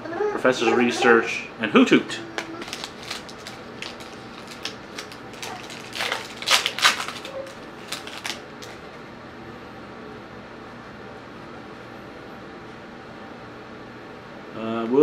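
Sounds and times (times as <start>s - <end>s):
foil pack crinkling and tearing: 2.4s - 9.0s.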